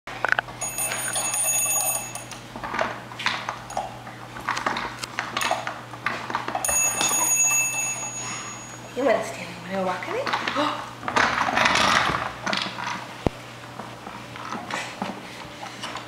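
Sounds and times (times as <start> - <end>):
high-pitched electronic ringing tone: 0.6 - 2.4, 6.6 - 8.9.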